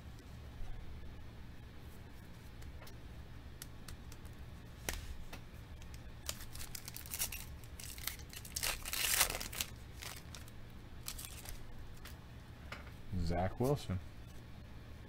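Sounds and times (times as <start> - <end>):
foil pack tearing and crinkling: 6.2 - 12.1.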